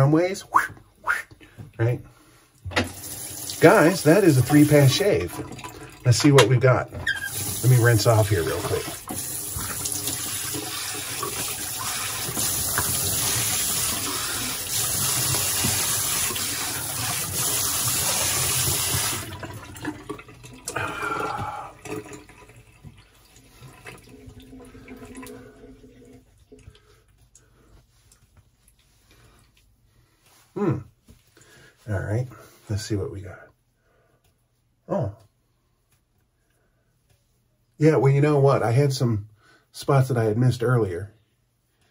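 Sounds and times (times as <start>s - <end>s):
water dripping: 2.6s - 29.7s
tap running into sink: 2.7s - 3.7s, 8.6s - 19.9s
water splashing: 2.9s - 26.9s.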